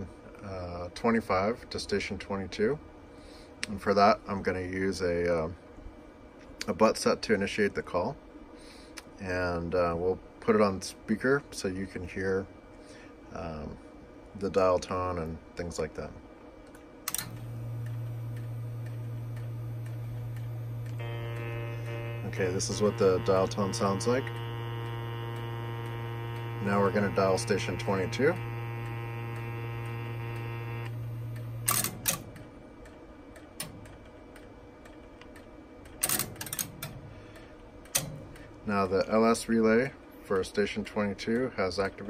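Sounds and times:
relay clicks: 0:16.7 - 0:38.6
low line hum: 0:17.0 - 0:33.0
faint regular ticking: 0:17.1 - 0:42.0
telephone dial tone: 0:17.7 - 0:32.2.

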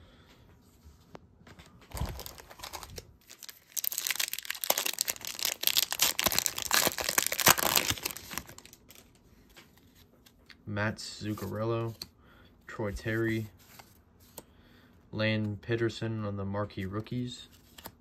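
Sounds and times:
plastic wrapper crinkling and tearing: 0:01.9 - 0:09.2.

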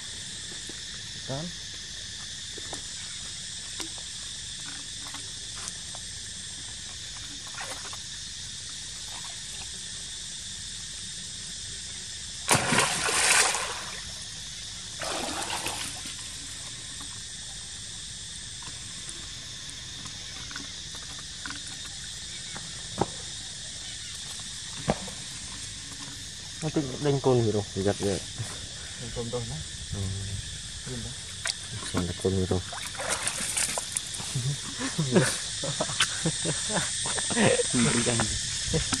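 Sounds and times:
insect drone: 0:00.0 - 0:39.0
monkey splashing in water: 0:12.5 - 0:14.1, 0:15.0 - 0:16.1, 0:31.4 - 0:34.2.

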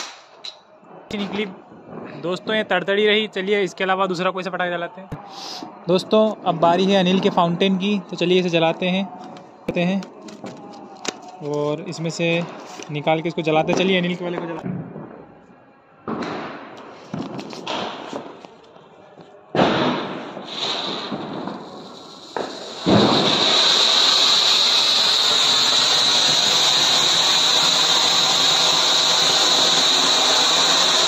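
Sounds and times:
firework hissing: 0:00.0 - 0:00.4, 0:19.6 - 0:31.0
high-pitched firework fountain hiss: 0:20.4 - 0:31.0.

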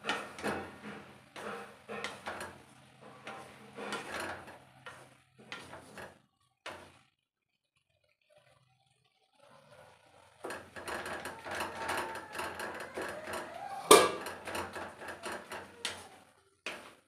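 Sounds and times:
spatula scraping metal pan: 0:00.0 - 0:07.0, 0:10.4 - 0:17.0.

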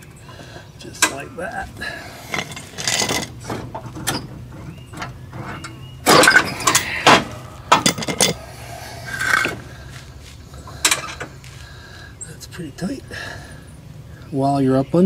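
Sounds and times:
sharp metal knocks: 0:02.4 - 0:08.4.

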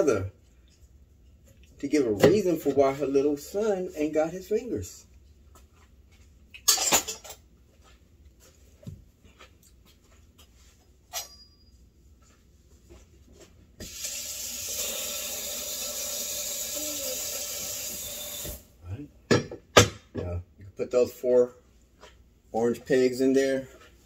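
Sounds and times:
tap running water into sink: 0:13.8 - 0:18.6
kitchen knocks and clicks: 0:19.3 - 0:20.3.

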